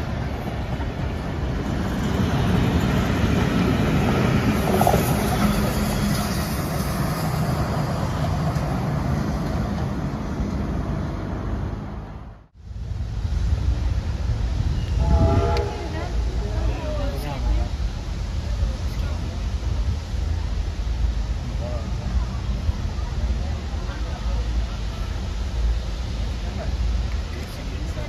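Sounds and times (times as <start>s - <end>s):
steam locomotive running by: 0.0s - 11.8s, 12.7s - 28.0s
train wheels rumbling on rails: 0.0s - 12.2s.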